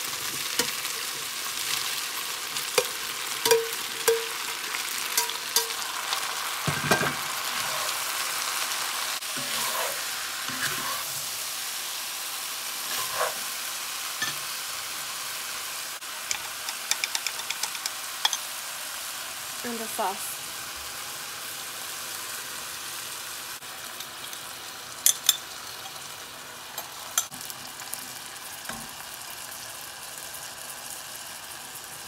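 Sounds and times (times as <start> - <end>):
meat and vegetables sizzling: 0.0 - 32.0
spatula scraping iron pot: 9.3 - 11.1, 12.9 - 13.5.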